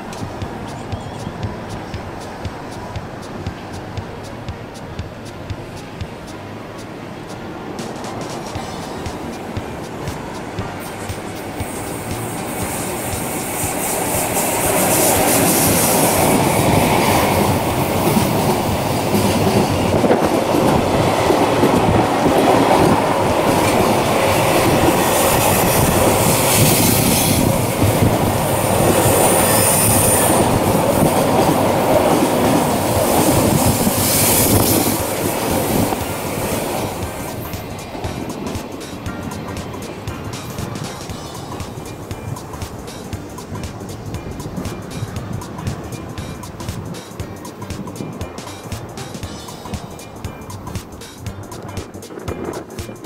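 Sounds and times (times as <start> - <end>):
high-pitched wheel squeals: 0.0 - 7.5, 8.1 - 39.9
train wheels rumbling and clattering: 0.0 - 53.0.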